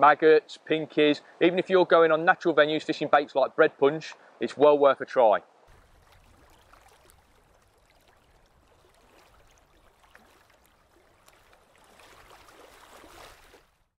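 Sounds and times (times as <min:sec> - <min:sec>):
small waves lapping: 0:05.6 - 0:14.0.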